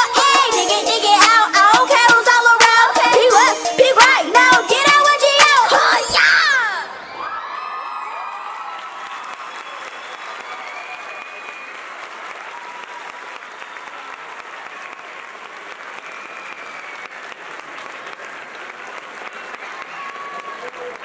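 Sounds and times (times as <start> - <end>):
audience applauding: 7.4 - 21.0
voices calling out and cheering: 19.2 - 21.0.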